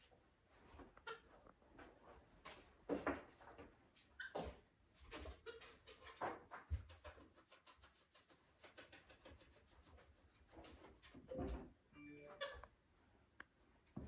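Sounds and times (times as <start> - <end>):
faint scratching and rubbing: 5.0 - 11.3.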